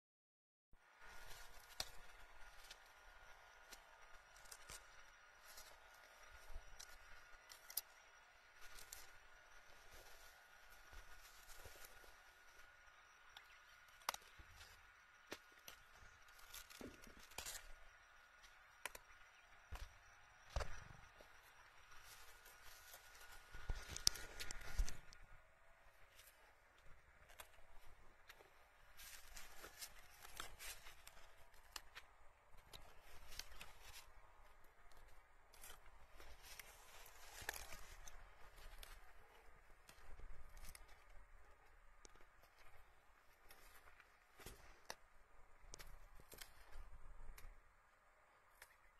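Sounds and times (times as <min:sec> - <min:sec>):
leaves rustling: 0:00.9 - 0:12.7, 0:13.3 - 0:19.1, 0:21.3 - 0:25.3, 0:27.1 - 0:41.2.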